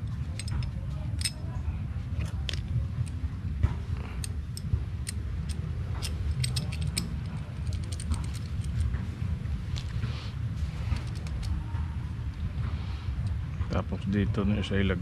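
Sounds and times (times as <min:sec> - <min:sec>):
small metal parts clinking: 0:00.0 - 0:03.3, 0:04.2 - 0:09.0, 0:10.8 - 0:11.9
steady low rumble: 0:00.0 - 0:15.0.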